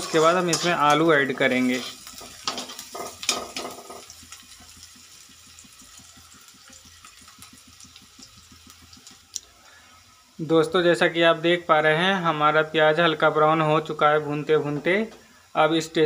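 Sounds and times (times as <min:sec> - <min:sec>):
metal spatula scraping pan: 0:00.0 - 0:04.1
onions sizzling in oil: 0:00.0 - 0:16.0.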